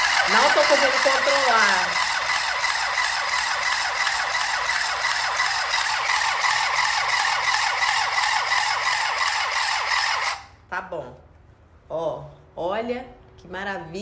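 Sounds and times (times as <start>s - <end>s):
mini sewing machine running: 0.0s - 10.5s.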